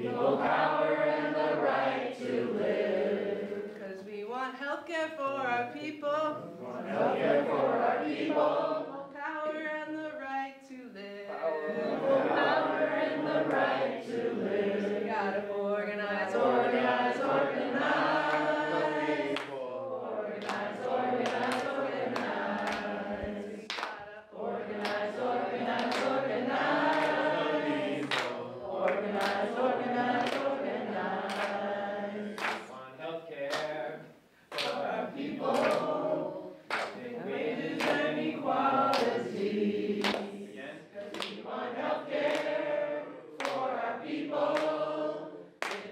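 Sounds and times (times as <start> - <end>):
crowd singing together: 0.0 - 4.2, 6.2 - 9.2, 11.0 - 45.9.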